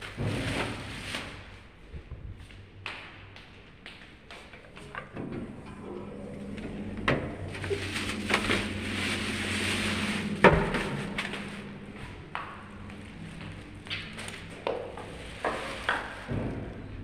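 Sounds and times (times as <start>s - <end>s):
steady low hum: 0.0s - 17.0s
plastic bags rustling: 7.4s - 16.3s.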